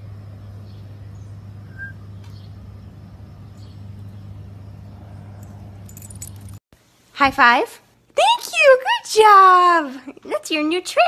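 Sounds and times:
steady low hum: 0.0s - 7.2s
short high chirp: 1.7s - 2.0s.

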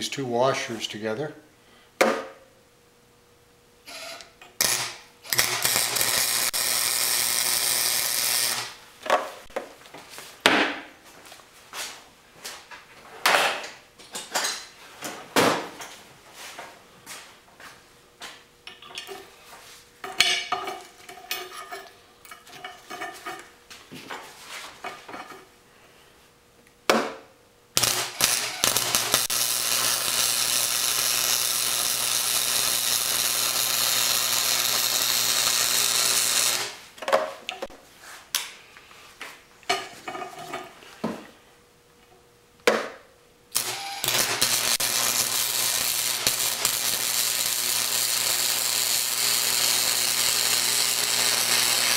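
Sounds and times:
low electrical hum: 0.0s - 51.9s
welding arc crackling: 4.6s - 8.8s, 27.8s - 36.8s, 43.5s - 51.9s.

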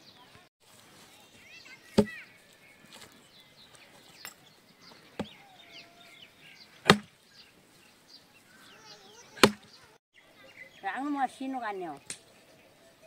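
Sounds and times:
small birds chirping: 0.0s - 13.0s
sharp knocks: 6.9s - 7.1s, 9.4s - 9.7s.

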